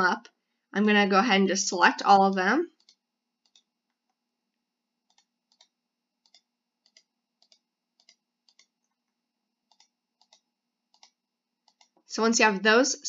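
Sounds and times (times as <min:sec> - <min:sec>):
faint mouse clicks: 0:02.3 - 0:04.2, 0:05.0 - 0:09.0, 0:09.7 - 0:12.1.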